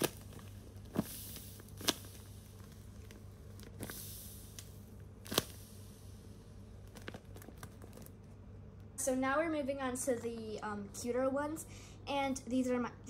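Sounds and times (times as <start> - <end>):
paper and tape crinkling: 0.0 - 4.0, 6.8 - 8.3.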